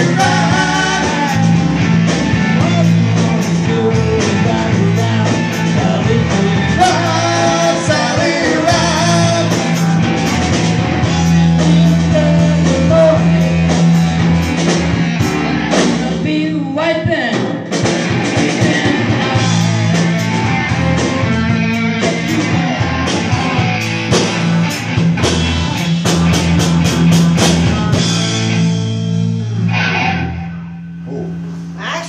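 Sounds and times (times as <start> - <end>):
person singing: 0.0 - 14.4
live rock band playing: 0.0 - 32.0.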